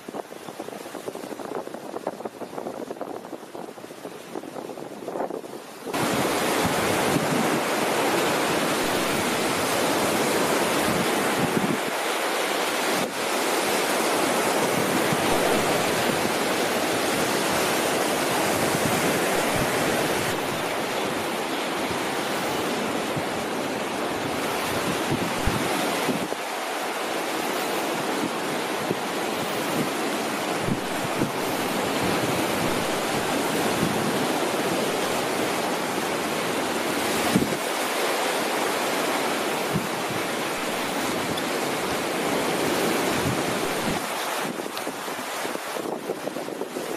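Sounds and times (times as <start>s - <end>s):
small waves washing onto beach: 0.0s - 46.9s
wind on microphone: 0.0s - 46.9s.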